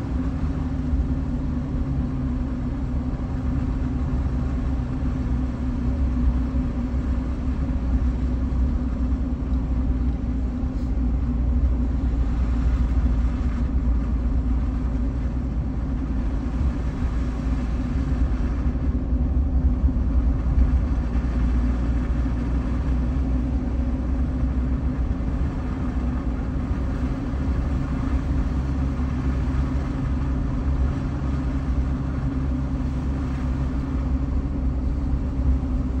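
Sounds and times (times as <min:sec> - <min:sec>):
vehicle engine and tyre rumble: 0:00.0 - 0:36.0.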